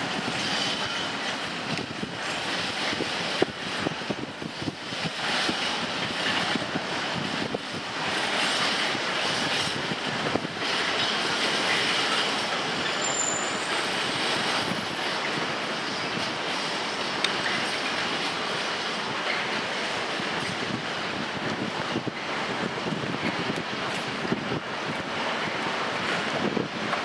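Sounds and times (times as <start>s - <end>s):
freight train passing: 0.0s - 27.0s
wheels clicking over rail joints: 0.0s - 27.0s
high wheel squeal: 12.8s - 14.4s.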